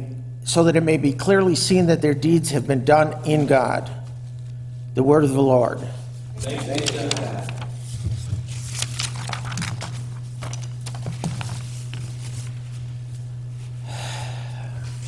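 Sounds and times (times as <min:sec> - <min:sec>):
steady low hum: 0:00.0 - 0:15.0
clicks and rustles: 0:06.6 - 0:12.3.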